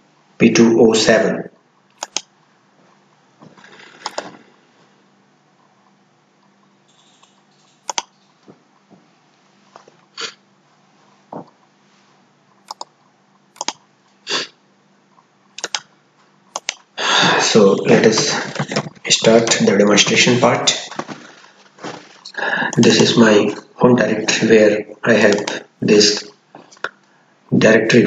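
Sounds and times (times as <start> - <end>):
mouse and keyboard clicks: 1.9 - 2.3, 3.9 - 4.3, 7.0 - 8.2, 12.6 - 12.9, 13.5 - 13.8, 15.6 - 15.9, 16.5 - 16.8
soft rustle: 9.1 - 12.6, 20.9 - 22.2.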